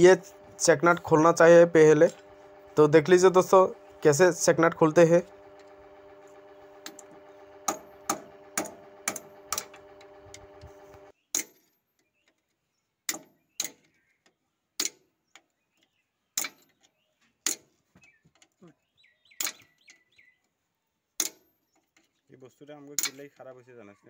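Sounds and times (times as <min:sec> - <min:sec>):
steady multi-pitch hum: 0:00.0 - 0:11.1
hammer striking steel spanner: 0:01.9 - 0:11.7, 0:23.0 - 0:23.4.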